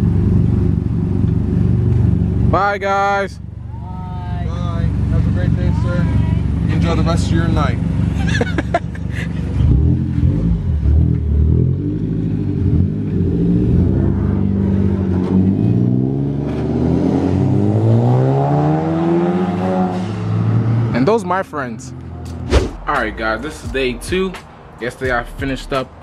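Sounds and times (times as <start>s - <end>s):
car engine accelerating: 4.6s - 23.3s.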